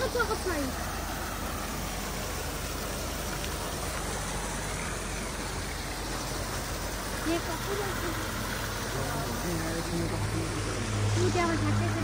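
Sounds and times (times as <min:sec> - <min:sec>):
cascade pouring into pond: 0:00.0 - 0:12.0
fountain water splashing: 0:00.0 - 0:12.0.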